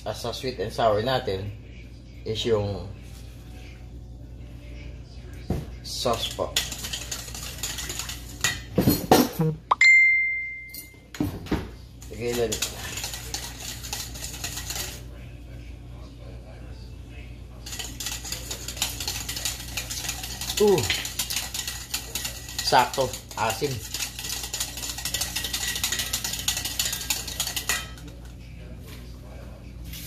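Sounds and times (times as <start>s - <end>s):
metal whisk rattling in bowl: 6.0s - 8.7s, 12.0s - 15.1s, 17.6s - 28.3s
utensil clinking on bowl: 6.1s - 8.7s, 12.0s - 15.0s, 17.6s - 28.3s.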